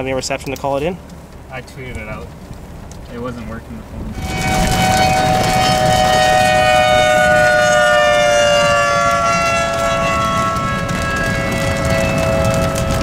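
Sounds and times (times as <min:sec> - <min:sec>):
car driving rumble: 0:00.0 - 0:13.0
two-tone warning siren wailing: 0:04.1 - 0:13.0.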